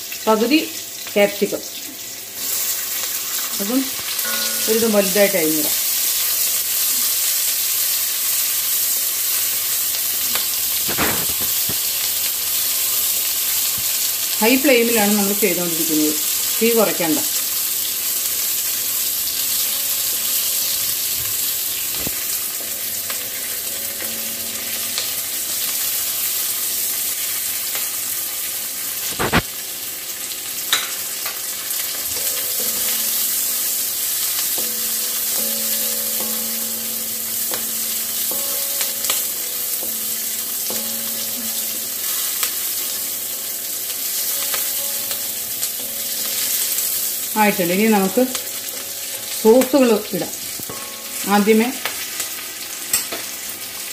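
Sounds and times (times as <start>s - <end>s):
vegetables sizzling in a pan: 0.0s - 53.9s
spatula knocking on pan: 34.5s - 42.5s.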